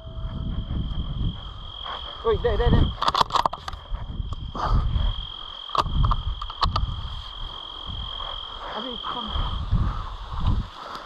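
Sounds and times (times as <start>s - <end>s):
high-pitched insect trill: 0.0s - 11.0s
wind buffeting microphone: 0.0s - 11.0s
sharp clicks: 5.7s - 6.9s.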